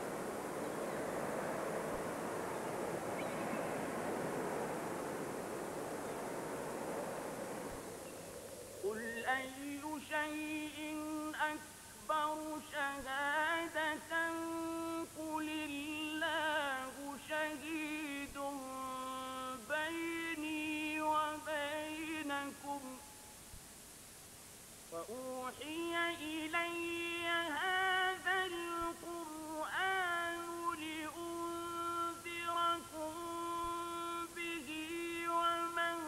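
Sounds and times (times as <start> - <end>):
wash of noise: 0.0 - 9.0
solo voice chanting recitation: 8.8 - 23.4, 24.9 - 36.0.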